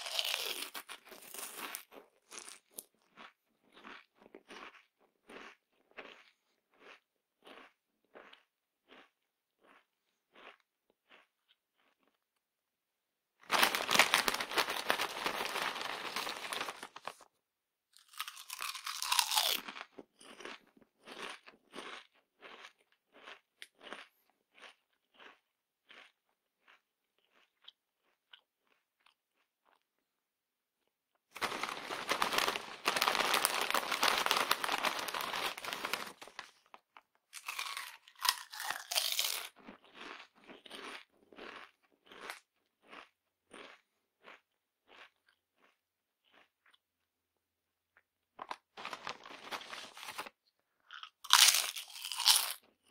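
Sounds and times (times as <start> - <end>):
crunchy chips being eaten: 0.0 - 12.3, 13.4 - 17.3, 18.0 - 30.1, 30.8 - 47.1, 47.9 - 52.9.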